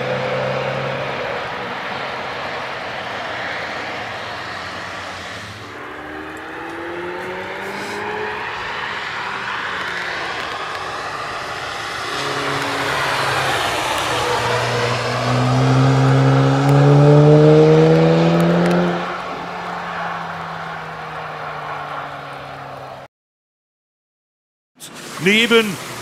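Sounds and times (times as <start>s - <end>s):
racing car engine accelerating: 0.0s - 22.2s
faint engine note: 11.8s - 15.6s.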